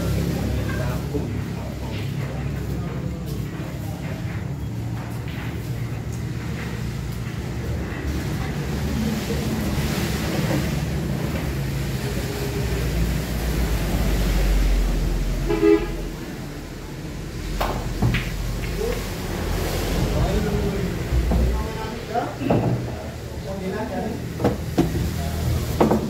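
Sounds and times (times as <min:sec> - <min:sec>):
traffic rumble: 0:00.0 - 0:26.0
vehicle horn toot: 0:15.4 - 0:16.1.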